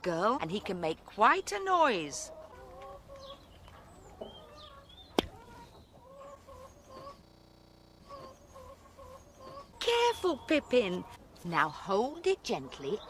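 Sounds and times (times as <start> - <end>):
chickens clucking: 0.5 - 13.0.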